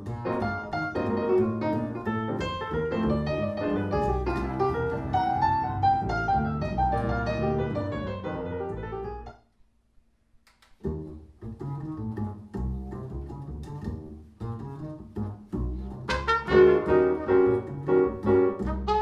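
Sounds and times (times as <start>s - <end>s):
plucked double bass: 0.0s - 9.3s, 10.8s - 19.0s
piano: 0.0s - 9.5s, 10.8s - 19.0s
trumpet: 16.0s - 17.8s, 18.5s - 19.0s.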